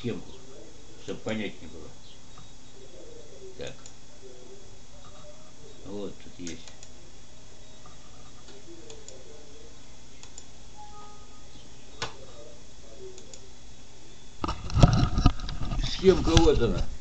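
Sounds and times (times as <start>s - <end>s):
low background hum: 0.0s - 17.0s
light ticks and clicks: 10.2s - 10.5s.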